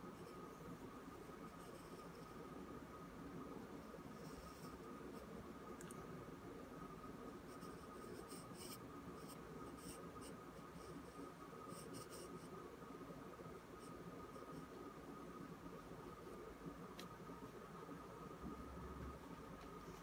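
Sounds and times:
pencil scratching on paper: 7.5 - 12.5.

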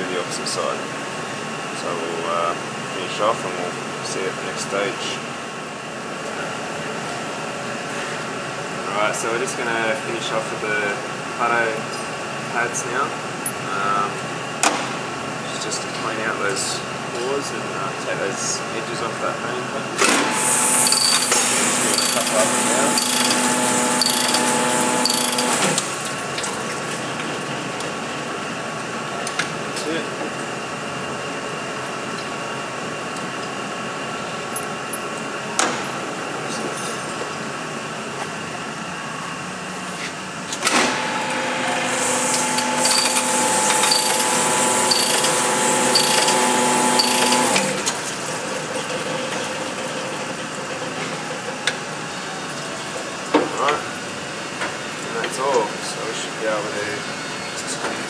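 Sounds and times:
spindle winding down: 20.7 - 25.9, 40.7 - 48.0
honing machine humming: 20.9 - 26.0, 40.5 - 52.8.

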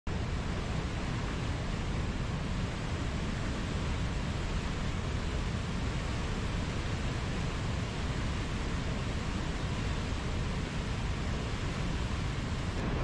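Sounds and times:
whitewater rushing over rocks: 0.1 - 13.0.

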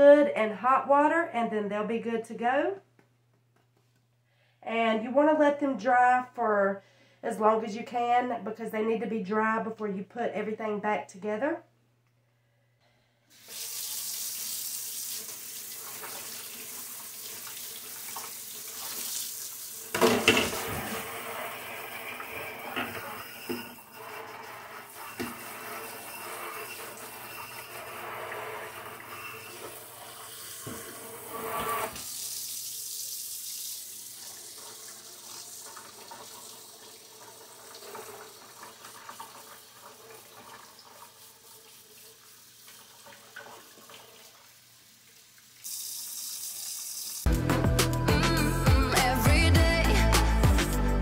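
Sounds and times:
faucet running into a steel sink: 13.3 - 47.3.

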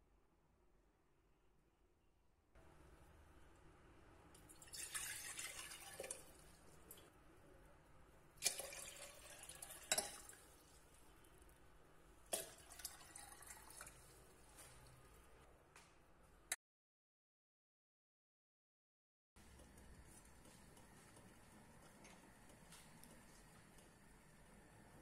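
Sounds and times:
water pouring into teapot: 4.4 - 7.1, 8.4 - 11.5, 12.2 - 14.5.

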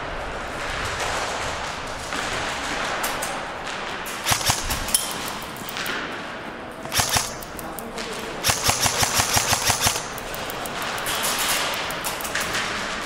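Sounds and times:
airsoft guns firing: 4.1 - 6.1, 6.8 - 7.8, 8.4 - 12.8.

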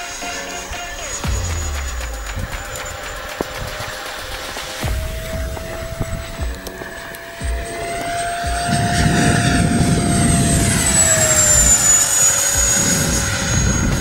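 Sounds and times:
jet fan whine: 0.0 - 14.0
rushing low rumble: 1.1 - 14.0.

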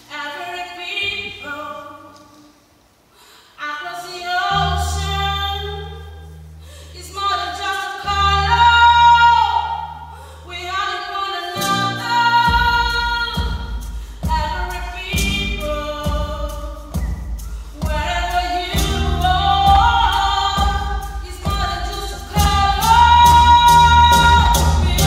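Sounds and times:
double bass notes: 4.4 - 10.9, 11.6 - 25.0
drum beat: 12.5 - 25.0.

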